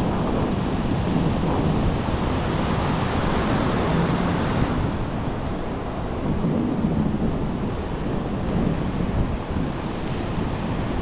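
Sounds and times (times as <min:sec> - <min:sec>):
wind on microphone: 0:00.0 - 0:11.0
ocean surf breaking: 0:00.1 - 0:07.6.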